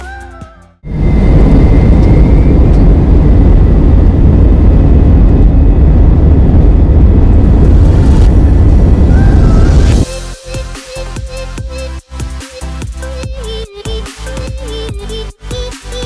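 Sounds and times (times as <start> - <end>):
faint engine whine: 0.8 - 10.1
jet engine low rumble: 0.8 - 10.1.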